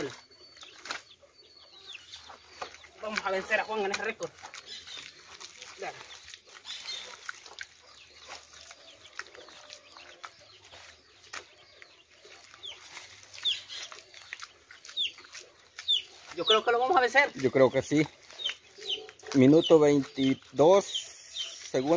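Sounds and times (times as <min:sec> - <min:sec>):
hands slapping wet mud: 0:02.4 - 0:16.6.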